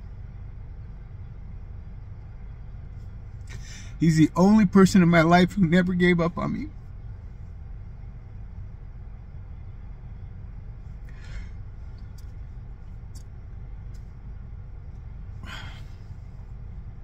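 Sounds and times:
car interior rumble: 0.0 - 17.0
man sniffling while crying: 3.5 - 4.0, 11.1 - 11.6, 15.4 - 16.3.

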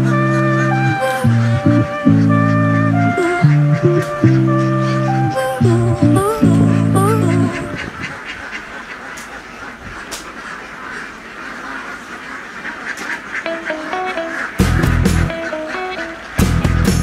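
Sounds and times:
backing music: 0.0 - 7.8, 13.5 - 17.0
flock of ducks quacking: 0.0 - 17.0.

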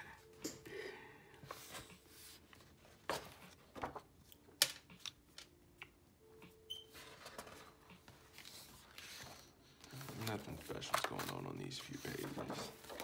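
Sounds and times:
sketchbook pages rustling: 1.5 - 4.4, 6.9 - 13.0.

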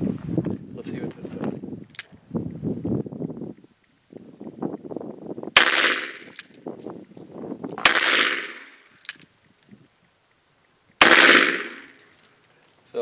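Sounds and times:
revolver shots: 7.8 - 8.8, 11.0 - 12.0.

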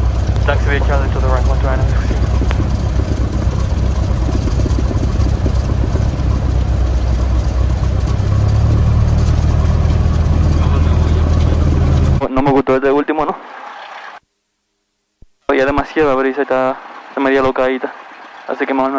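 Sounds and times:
airplane propeller engine drone: 0.0 - 12.2.

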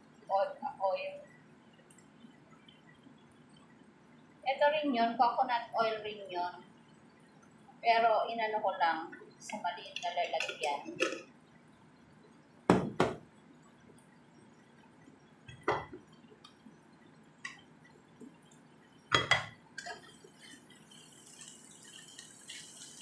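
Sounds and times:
wooden spatula knocking on frying pan: 12.7 - 13.2.

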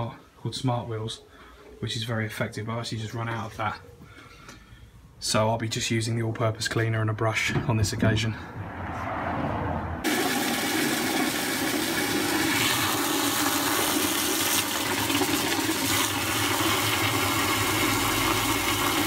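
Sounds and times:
hose water jetting into bucket: 10.0 - 19.0.

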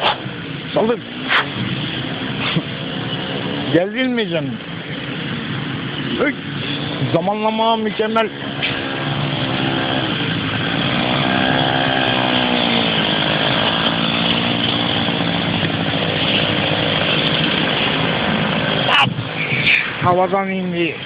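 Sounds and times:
motorcycle engine passing: 4.9 - 20.0.

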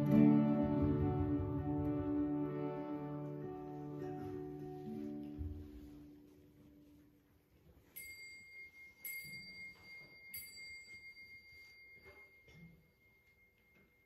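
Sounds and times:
small bell ringing: 7.8 - 14.0.

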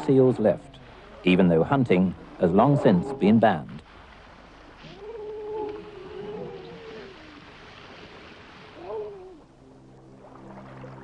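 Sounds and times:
faint steady hiss: 0.0 - 11.0
seal moaning: 2.4 - 3.5, 4.8 - 7.4, 8.8 - 9.5.

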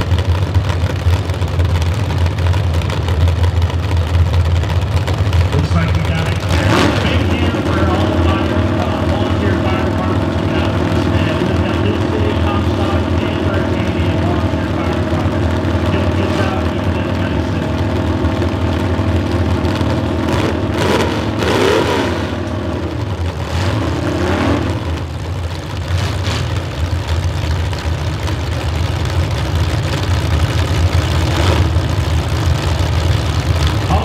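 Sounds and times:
car engines idling: 0.0 - 34.0
engine revving: 5.4 - 27.2, 29.7 - 34.0.

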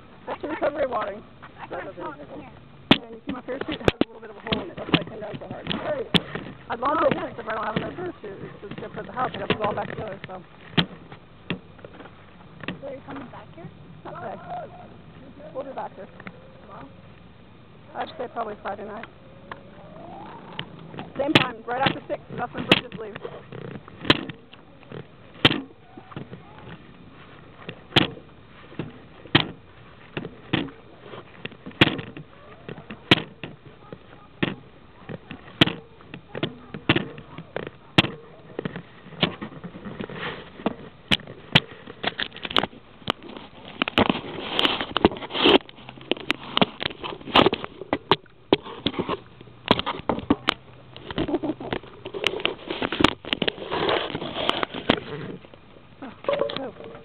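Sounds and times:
rubbing and rustling: 18.0 - 57.0.

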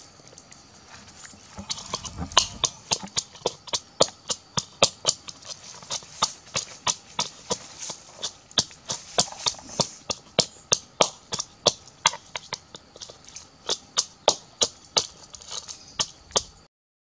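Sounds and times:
pestle pounding in a bowl: 10.8 - 12.5.

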